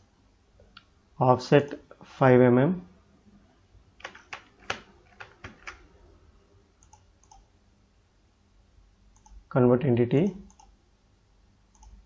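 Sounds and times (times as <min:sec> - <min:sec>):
keyboard keystrokes: 0:04.0 - 0:05.8
mouse clicks: 0:06.8 - 0:07.4, 0:09.2 - 0:09.4, 0:10.5 - 0:10.8, 0:11.7 - 0:12.0.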